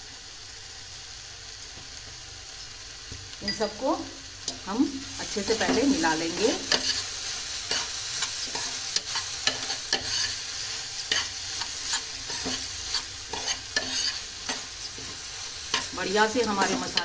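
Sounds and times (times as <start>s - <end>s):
food sizzling: 0.0s - 17.0s
spatula scraping a pot: 5.6s - 17.0s.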